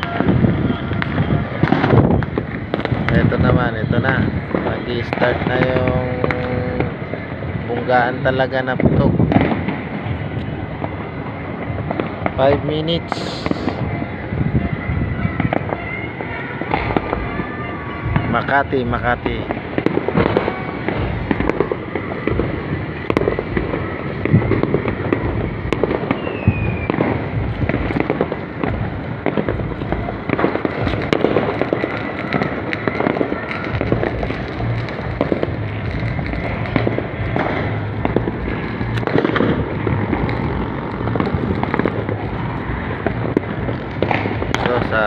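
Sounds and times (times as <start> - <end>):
distant fireworks crackling: 0.0 - 45.0
sharp fireworks bangs: 0.0 - 45.0.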